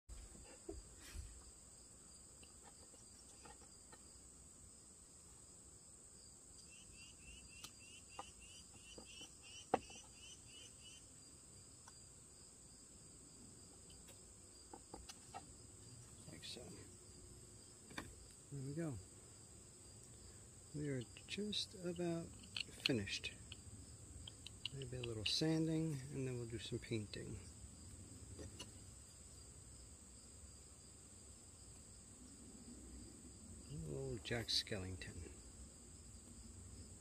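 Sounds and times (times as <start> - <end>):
steady high hiss: 10.2 - 37.0.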